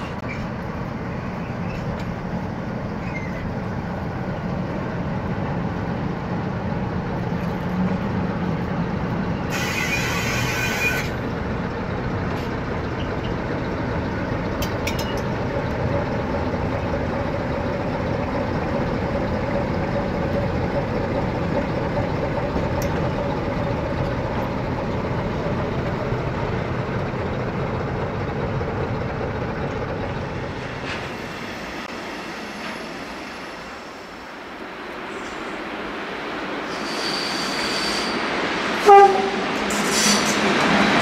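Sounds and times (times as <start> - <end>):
locomotive engine running: 0.0 - 35.0
air brake hiss: 9.5 - 11.1, 36.7 - 38.3, 39.7 - 40.4.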